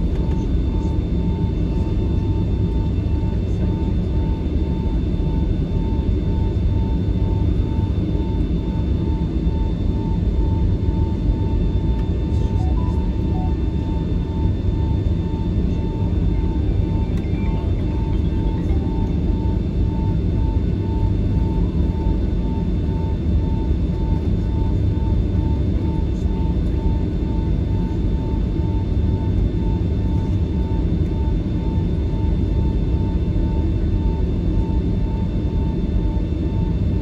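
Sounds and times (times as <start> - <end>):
aircraft cabin low rumble: 0.0 - 37.0
faint pulsing high tone: 12.3 - 15.4, 16.0 - 21.6.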